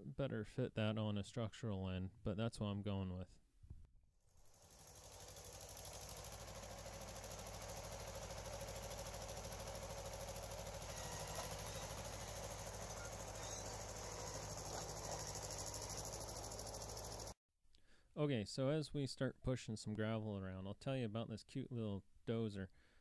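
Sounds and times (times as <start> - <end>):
diesel engine knocking: 4.7 - 17.4.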